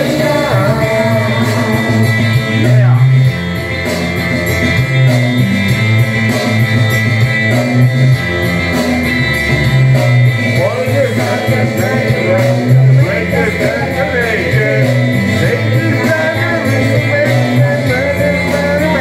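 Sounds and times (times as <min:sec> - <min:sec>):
woman singing into microphone: 0:00.0 - 0:02.6
karaoke backing music: 0:00.0 - 0:19.0.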